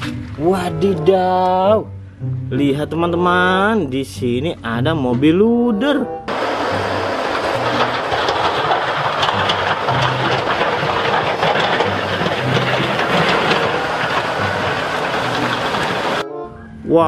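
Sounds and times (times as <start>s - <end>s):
diesel engine running: 6.3s - 16.2s
plow blade scraping through snow: 6.3s - 16.2s.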